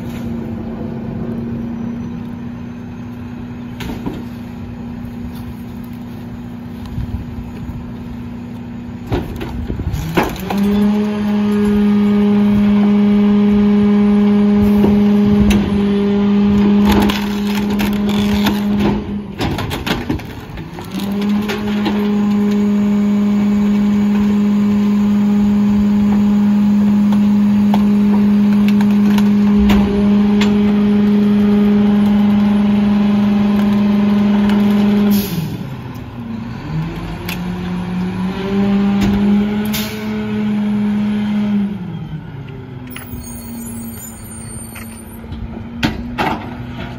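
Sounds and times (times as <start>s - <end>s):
garbage truck engine revving: 9.0s - 43.2s.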